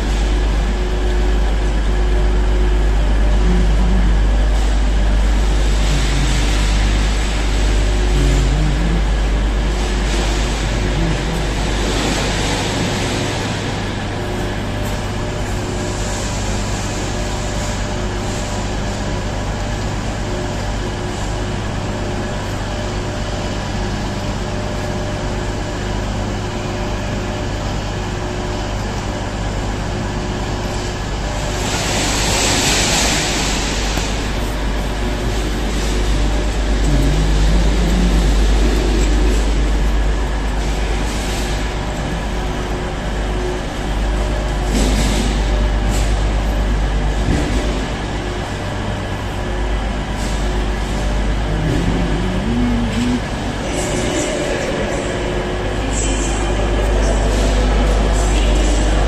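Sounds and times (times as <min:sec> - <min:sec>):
deep rumble: 0:00.0 - 0:16.2, 0:31.4 - 0:55.0
station ambience hiss: 0:00.0 - 0:20.5, 0:29.7 - 0:47.2, 0:47.8 - 0:59.0
machine-like drone: 0:00.0 - 0:59.0.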